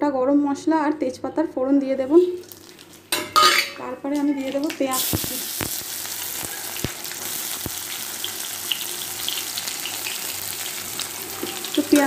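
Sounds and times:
small crackles: 2.4s - 3.1s, 4.2s - 12.0s
onions sizzling in hot oil: 2.4s - 12.0s.

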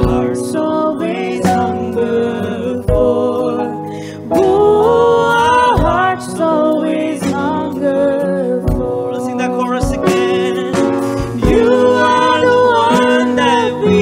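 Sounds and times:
guitar: 0.0s - 14.0s
man and woman singing: 0.0s - 14.0s.

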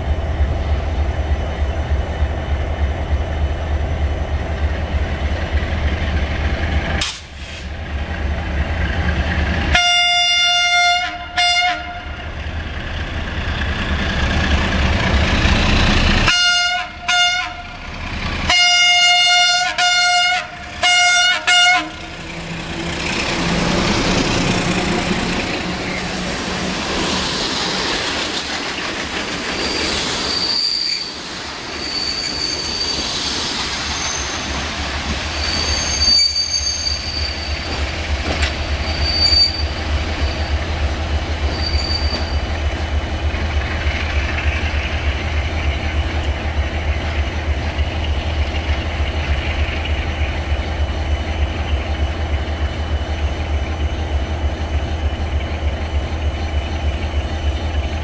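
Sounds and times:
wheels squealing: 29.4s - 37.8s, 38.7s - 40.6s, 41.4s - 42.5s
clatter over rail joints: 37.7s - 38.7s.

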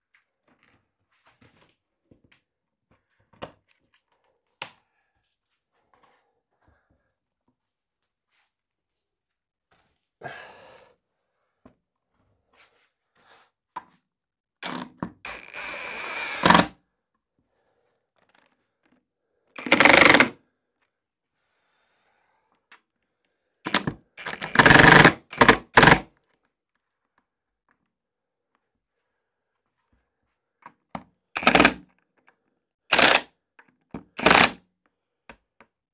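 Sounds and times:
cordless drill bursts: 14.6s - 16.7s, 19.6s - 20.4s, 23.7s - 26.0s, 31.4s - 31.8s, 32.9s - 33.2s, 34.2s - 34.6s.

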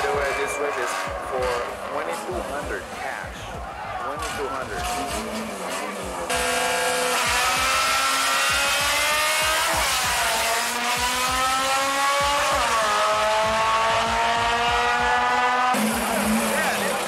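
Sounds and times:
car engine accelerating hard: 4.2s - 17.0s.

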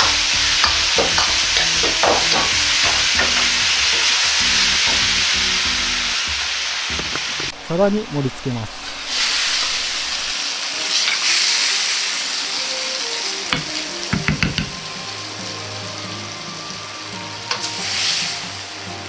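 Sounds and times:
metal ladle knocking on wok: 0.0s - 5.3s, 13.6s - 14.8s
stir-fry sizzling: 0.0s - 19.0s.

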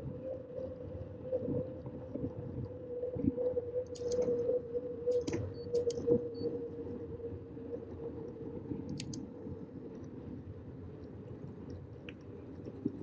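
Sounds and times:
sharp clicks: 3.9s - 4.3s, 5.1s - 6.1s, 8.9s - 9.2s
bicycle rolling on pavement: 9.2s - 13.0s.

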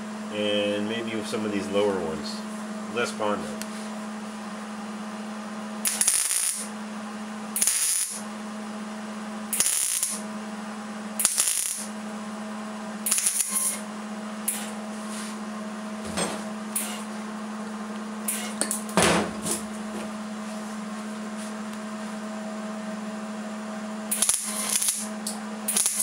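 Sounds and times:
steady low hum: 0.0s - 26.0s
welder arc crackle: 5.8s - 6.7s, 7.6s - 8.2s, 9.5s - 10.2s, 11.2s - 12.0s, 13.1s - 13.8s, 14.5s - 14.8s, 16.8s - 17.1s, 18.3s - 18.7s, 24.1s - 26.0s.

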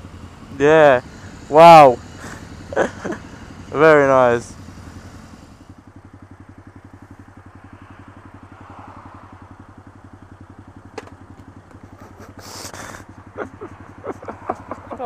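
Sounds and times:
motorcycle engine idling: 0.0s - 15.0s.

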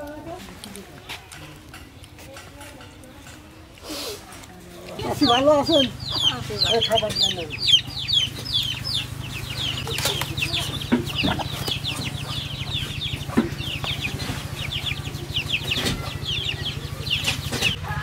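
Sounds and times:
birds chirping: 4.7s - 18.0s.

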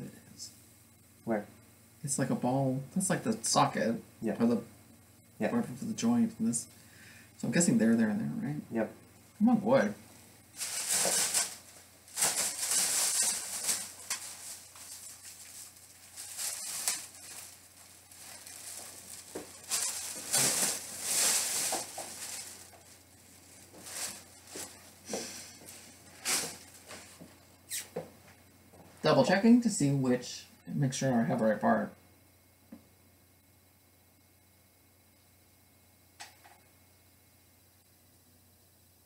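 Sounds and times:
plastic model parts rustling: 10.6s - 24.8s.

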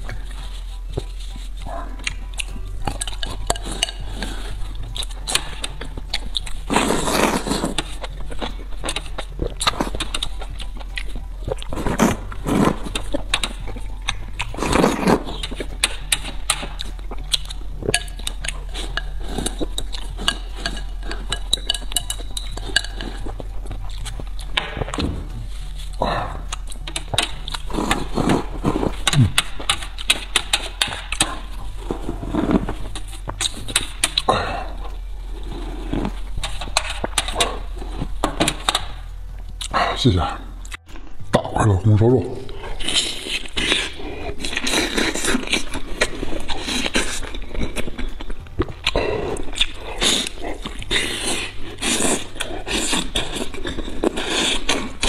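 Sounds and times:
chewing and mouth noises: 0.0s - 55.0s
spoon clinking on metal tray: 20.2s - 23.2s.

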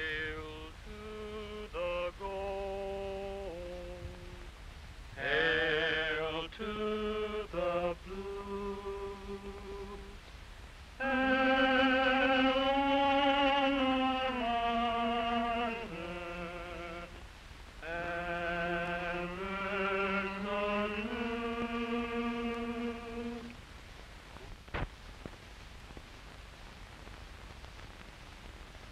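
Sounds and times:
person singing with vibrato: 0.0s - 4.6s, 5.2s - 10.3s, 11.0s - 23.6s
film soundtrack hiss: 0.0s - 28.9s.

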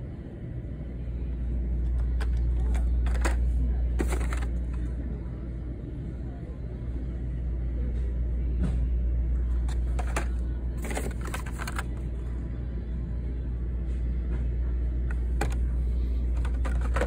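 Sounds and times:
steady low rumble: 0.0s - 17.0s
plastic packs rustling and clacking: 4.0s - 4.6s, 9.7s - 12.0s, 16.3s - 17.0s.

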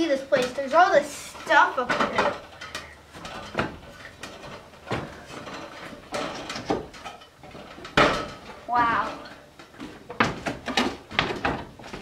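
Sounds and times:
wooden knocks: 3.2s - 12.0s
footsteps on wooden floor: 9.7s - 12.0s.

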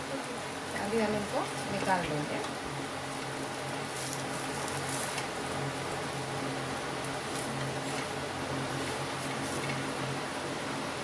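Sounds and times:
low hum and hiss: 0.0s - 11.0s
spatula scraping a griddle: 3.8s - 5.3s.

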